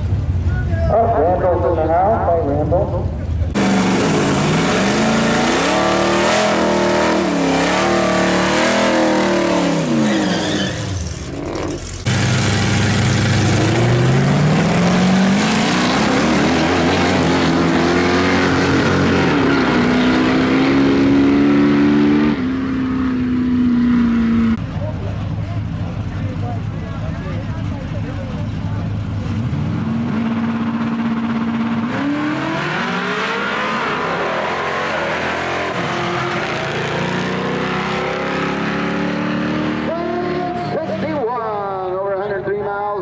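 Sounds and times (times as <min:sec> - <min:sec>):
engines revving: 0:01.2 - 0:41.9
engine full-throttle launch: 0:03.5 - 0:22.4.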